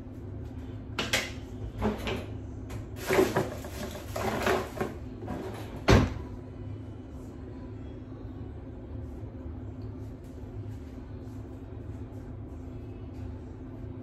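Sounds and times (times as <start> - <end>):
objects rustling and clicking: 1.8 - 5.8.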